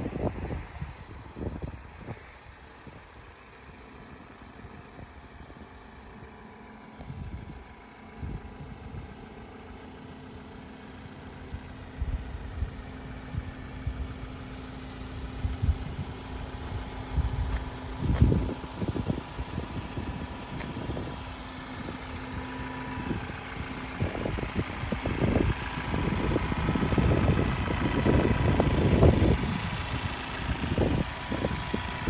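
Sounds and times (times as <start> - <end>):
wind gusting on microphone: 0.0 - 2.2, 15.2 - 21.2, 21.8 - 32.0
diesel engine idling: 0.0 - 32.0.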